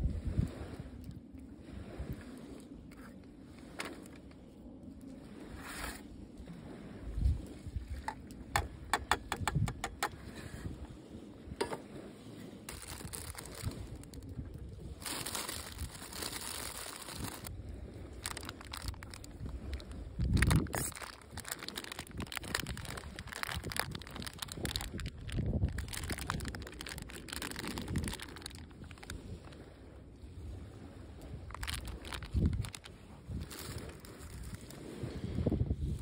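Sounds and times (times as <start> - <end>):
plastic packets crinkling: 12.7 - 14.2, 15.0 - 17.5, 18.1 - 29.2, 31.5 - 34.6.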